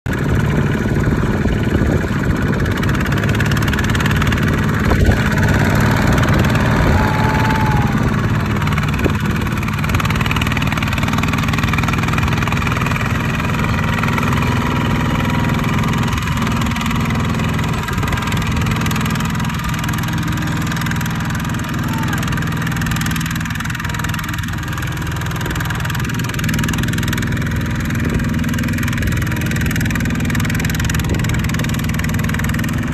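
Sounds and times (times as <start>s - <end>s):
diesel engine chugging: 0.1s - 32.9s.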